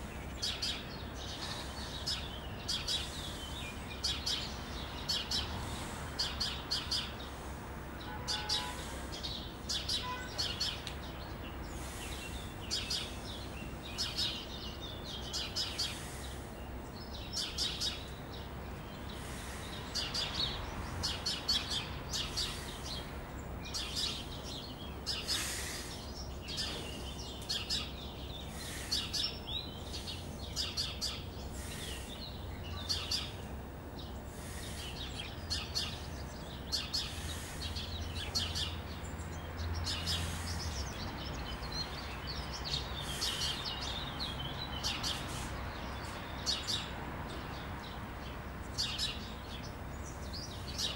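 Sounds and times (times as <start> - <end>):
small birds chirping: 0.0 - 50.9.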